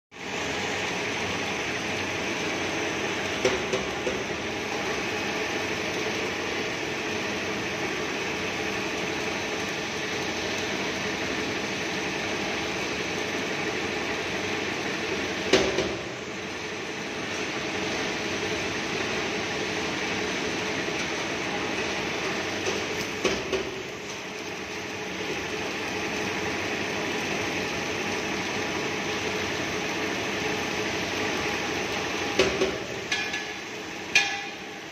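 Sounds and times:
metallic knocks: 33.1 - 34.6.

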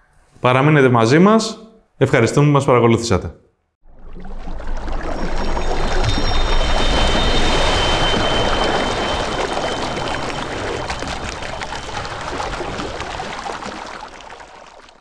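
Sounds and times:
splashing rushing water: 4.0 - 15.0.

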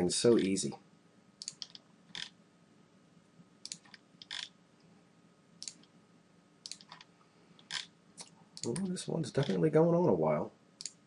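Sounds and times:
computer mouse clicks: 1.4 - 2.4, 3.6 - 4.5, 5.6 - 5.9, 6.6 - 9.6, 10.8 - 11.0.

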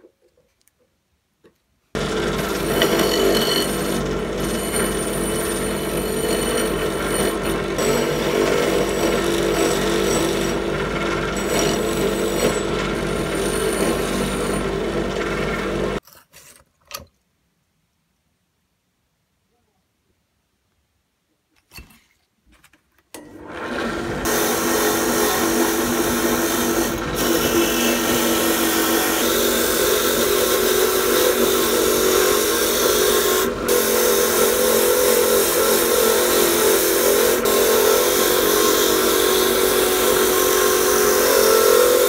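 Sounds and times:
wire wheel scrubbing metal: 2.0 - 16.0, 24.2 - 42.0.

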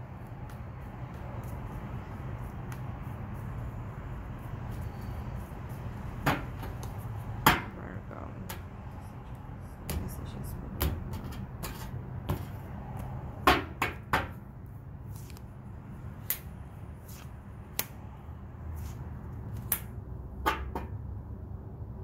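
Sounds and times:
low steady hum: 0.0 - 13.2
cards slapping and tapping: 0.2 - 3.2, 18.8 - 20.0.

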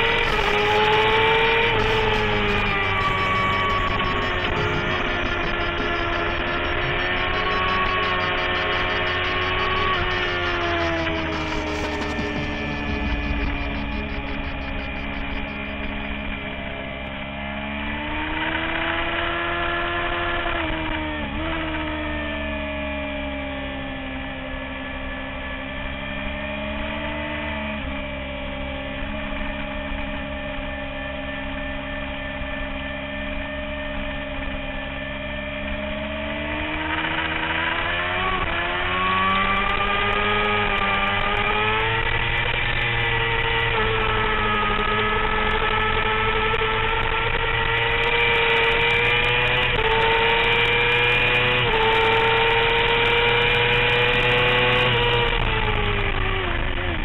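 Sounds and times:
motorcycle engine revving: 0.0 - 17.4, 35.7 - 57.0.

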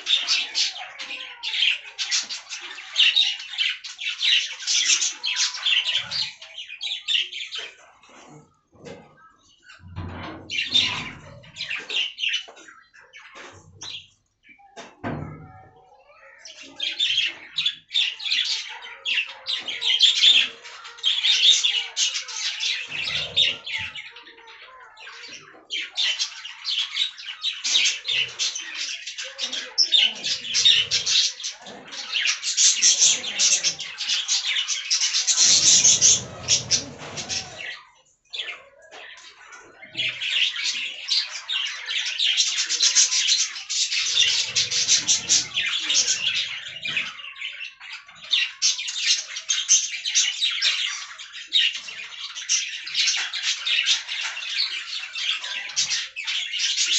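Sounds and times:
budgerigars chattering: 16.2 - 37.8, 38.4 - 56.9.

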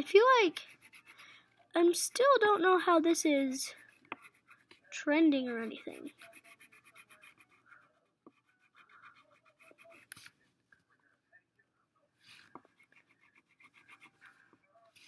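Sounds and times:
crayon scratching on paper: 0.0 - 1.3, 3.7 - 10.4, 12.3 - 15.0.

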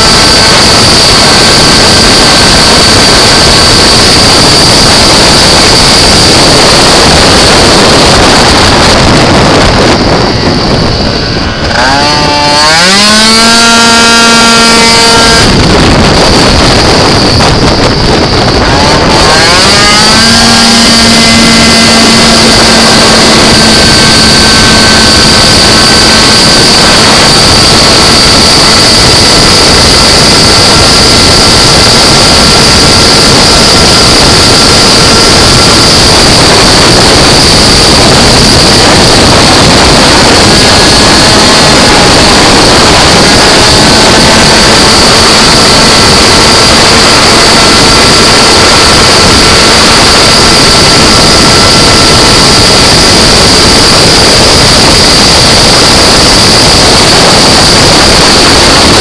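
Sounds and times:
scooter engine revving high: 0.0 - 59.0.

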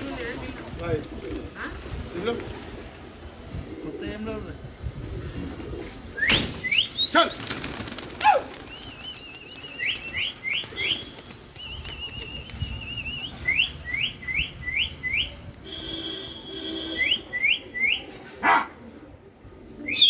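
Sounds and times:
pigeon wings flapping: 0.0 - 3.0, 6.6 - 13.4.

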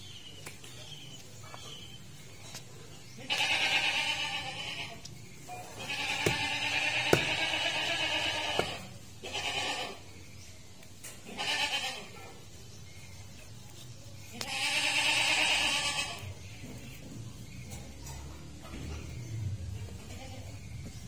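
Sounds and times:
goat bleating: 3.2 - 5.1, 5.7 - 10.1, 11.2 - 12.2, 14.3 - 16.4, 20.0 - 20.6
cleaver chopping on wood: 6.1 - 7.6, 8.5 - 8.9.

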